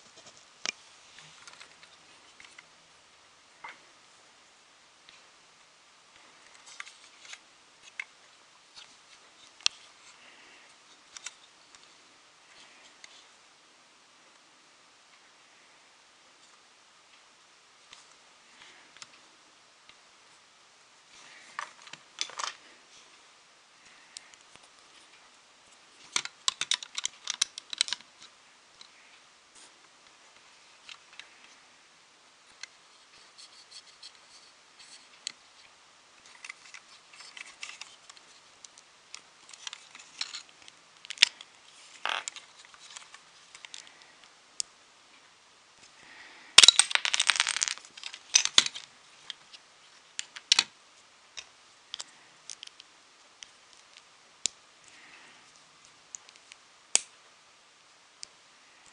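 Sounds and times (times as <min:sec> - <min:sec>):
plastic bricks clicking and rustling: 0:26.0 - 0:28.9, 0:36.2 - 0:44.1, 0:46.6 - 0:50.7.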